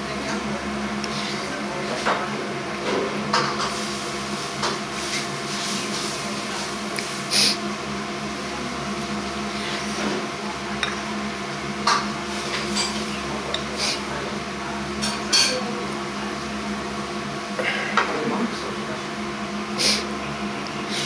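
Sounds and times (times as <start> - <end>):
machine hum: 0.0 - 21.0.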